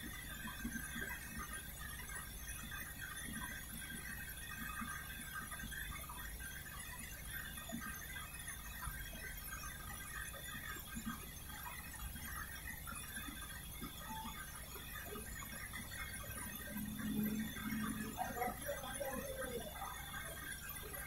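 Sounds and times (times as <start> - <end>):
high-pitched motor chirps: 13.1 - 21.0
washing machine motor humming: 13.5 - 21.0.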